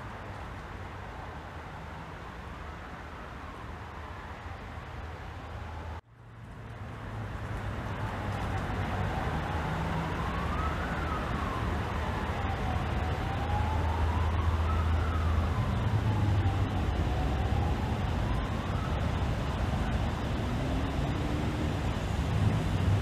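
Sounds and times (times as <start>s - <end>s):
city traffic hum: 0.0s - 23.0s
emergency siren wailing: 8.0s - 23.0s.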